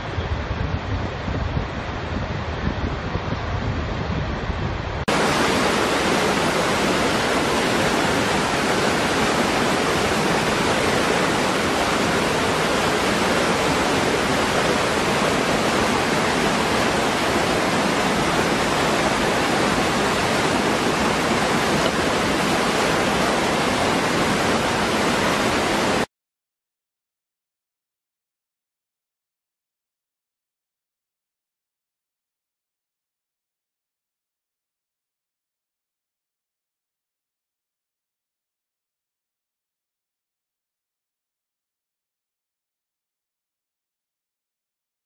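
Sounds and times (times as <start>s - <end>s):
waterfall pouring over rocks: 5.1s - 26.1s.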